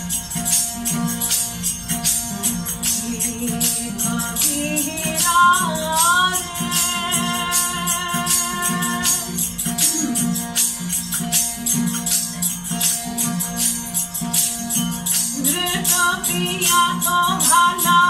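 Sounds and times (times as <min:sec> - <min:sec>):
jingling shaken percussion: 0:00.0 - 0:18.0
people singing: 0:03.6 - 0:09.4.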